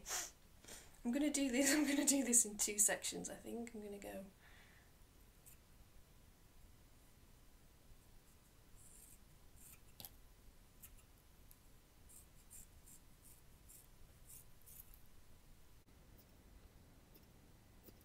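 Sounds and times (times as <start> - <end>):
scissors snipping hair: 13.7 - 15.0.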